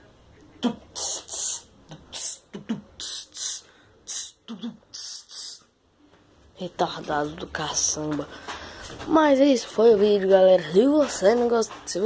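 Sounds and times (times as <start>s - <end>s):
beatbox hissing sounds: 0.6s - 5.7s.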